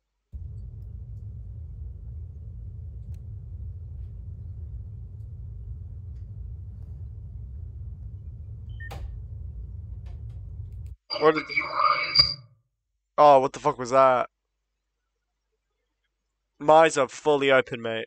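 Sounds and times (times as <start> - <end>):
low rumbling drone: 0.4 - 12.4
short high beeps: 11.1 - 12.4.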